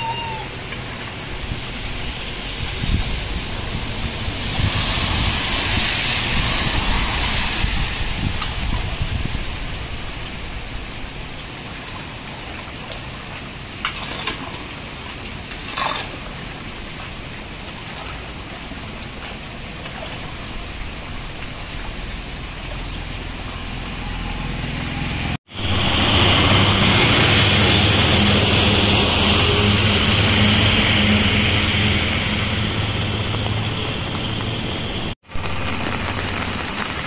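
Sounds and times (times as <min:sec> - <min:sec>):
heavy rain hissing: 0:00.0 - 0:15.4, 0:16.1 - 0:37.0
low hum: 0:23.5 - 0:37.0.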